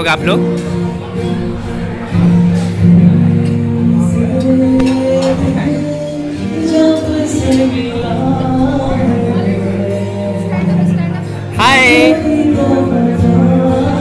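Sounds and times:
guitar: 0:00.0 - 0:14.0
person singing: 0:02.6 - 0:14.0.

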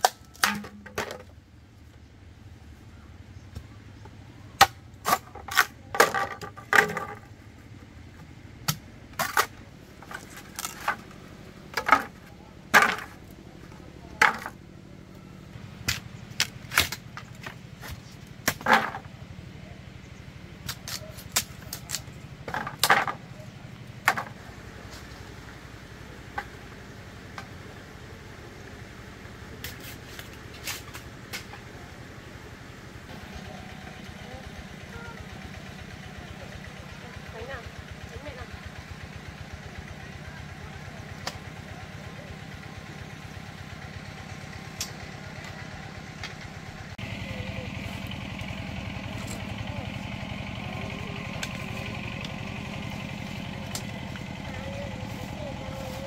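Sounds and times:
hard objects knocking: 0:00.4 - 0:01.3, 0:05.1 - 0:07.3.

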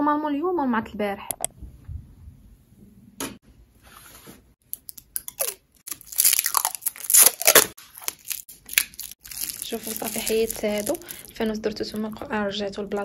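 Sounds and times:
plastic film crackling and rustling: 0:05.9 - 0:11.6.

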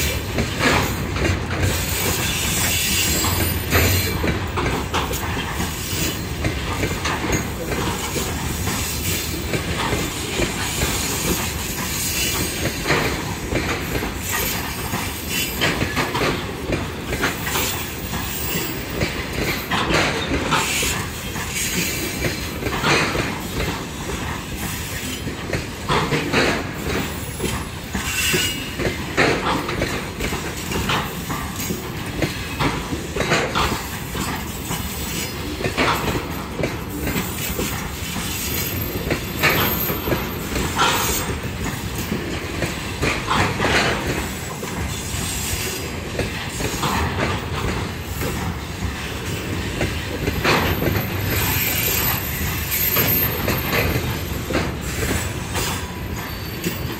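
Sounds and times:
train wheels clacking on rails: 0:00.0 - 0:56.9
high wheel squeals: 0:50.8 - 0:54.4, 0:55.6 - 0:56.9.

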